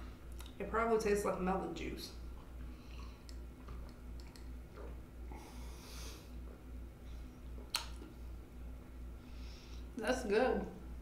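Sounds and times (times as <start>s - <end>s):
soft breaths: 5.3s - 7.4s, 9.1s - 10.0s.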